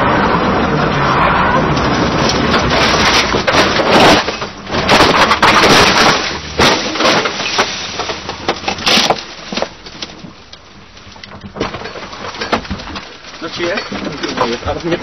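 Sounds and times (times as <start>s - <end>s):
low rumble: 0.0s - 4.0s
car crash impacts and scraping: 0.0s - 10.5s, 11.3s - 15.0s
knocks and rattles: 1.7s - 15.0s.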